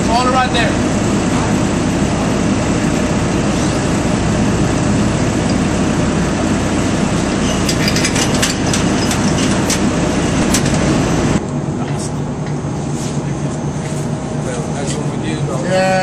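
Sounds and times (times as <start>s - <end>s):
heavy machinery drone: 0.0s - 16.0s.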